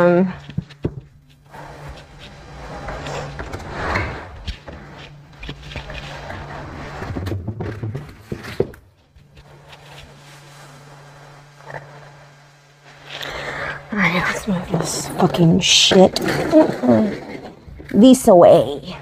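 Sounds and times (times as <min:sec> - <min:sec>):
steady low hum: 0:00.0 - 0:19.0
plastic bench scraping on tile: 0:00.4 - 0:13.8, 0:14.4 - 0:18.0
bench knocking down: 0:01.8 - 0:09.0.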